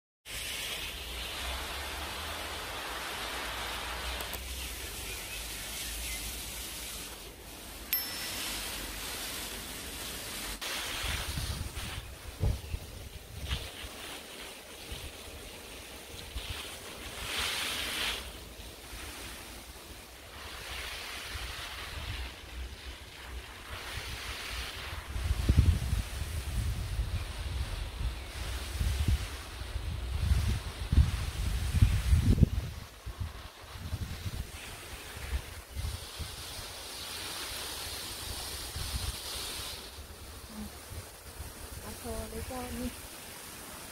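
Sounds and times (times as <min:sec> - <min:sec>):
hose nozzle spraying water: 0:00.3 - 0:43.9
wind buffeting microphone: 0:11.0 - 0:13.7, 0:23.8 - 0:36.5.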